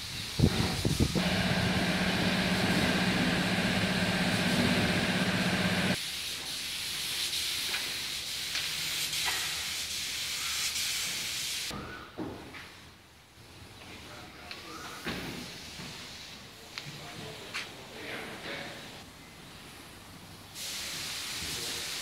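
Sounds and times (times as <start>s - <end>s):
machine hum with hiss: 0.4s - 6.0s.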